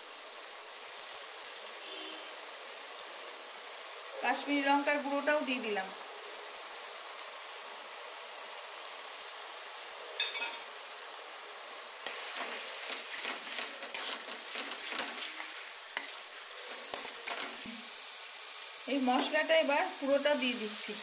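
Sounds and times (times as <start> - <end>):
paste sizzling in oil: 0.0 - 21.0
spatula scraping pan: 12.0 - 17.9.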